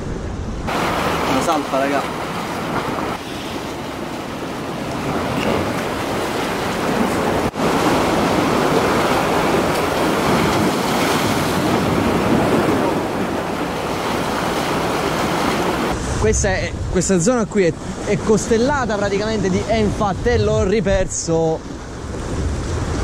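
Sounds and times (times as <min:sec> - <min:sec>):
wind blowing across microphone: 0:00.0 - 0:23.0
surf breaking against rocks: 0:00.7 - 0:16.0.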